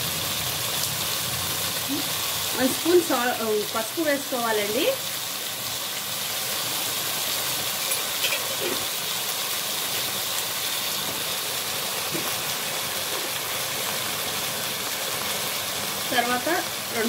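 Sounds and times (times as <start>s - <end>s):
chicken sizzling in hot oil: 0.0s - 17.0s.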